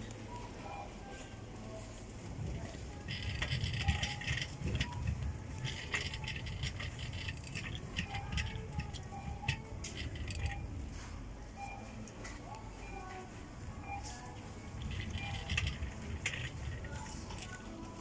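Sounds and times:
clicks and rattles: 2.5 - 11.1, 14.0 - 18.0.

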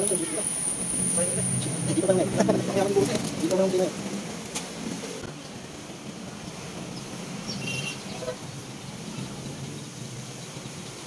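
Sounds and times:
outdoor background noise: 0.0 - 11.0
bird chirp: 7.0 - 8.2.

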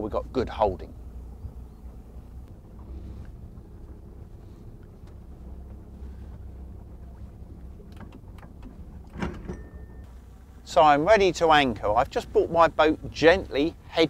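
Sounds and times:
boat engine rumbling: 0.0 - 14.0
sharp clicks and knocks: 7.7 - 9.8.

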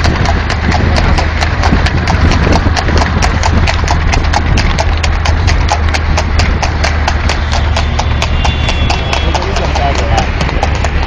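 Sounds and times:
low rumble: 0.0 - 8.5
horse hooves clip-clopping: 0.0 - 11.0.

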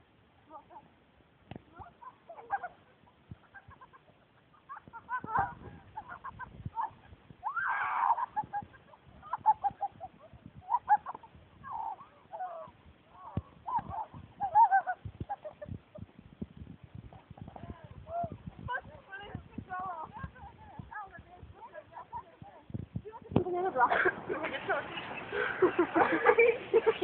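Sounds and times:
girls laughing and squealing: 1.8 - 16.2, 17.0 - 22.6, 23.2 - 27.0
girl shrieking: 7.4 - 8.4.

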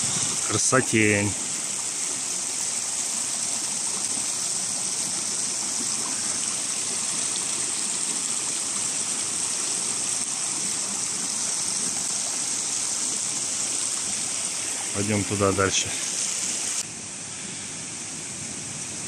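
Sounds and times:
rushing mountain water: 0.0 - 19.0.

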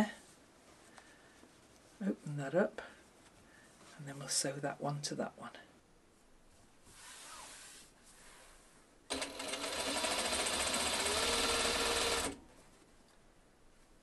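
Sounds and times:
sewing machine running: 9.1 - 12.4.

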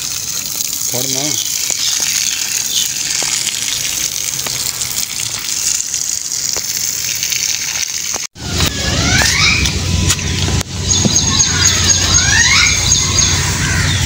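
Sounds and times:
garden hose water gushing: 0.0 - 14.0
high gliding squeaks: 8.4 - 14.0.

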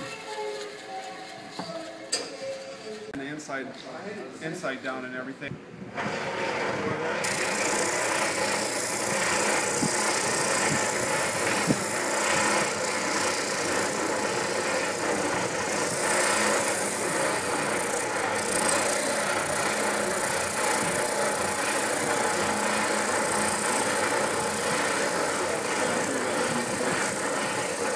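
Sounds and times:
spindle sander motor hum: 5.9 - 27.9
sanding drum hissing on wood: 7.2 - 27.9.

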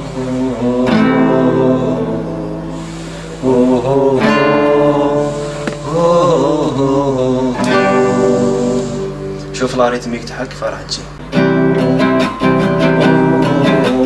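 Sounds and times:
man singing: 0.0 - 9.8, 13.0 - 14.0
acoustic guitar strumming: 0.0 - 14.0.

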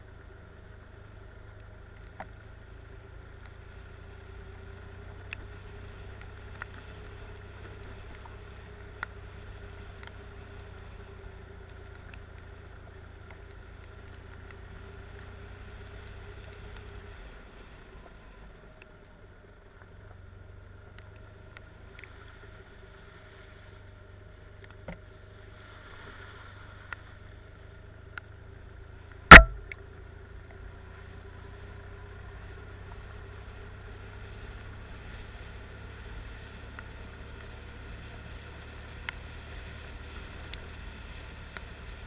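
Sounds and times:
sharp loud knock: 29.3 - 29.6
motorcycle engine running: 29.3 - 31.2.

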